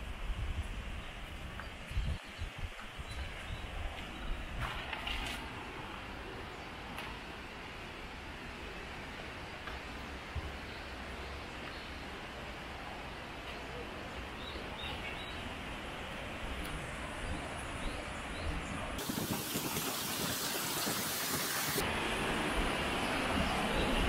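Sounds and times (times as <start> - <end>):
wind buffeting microphone: 0.0 - 5.4, 16.5 - 24.0
wind hiss: 15.4 - 24.0.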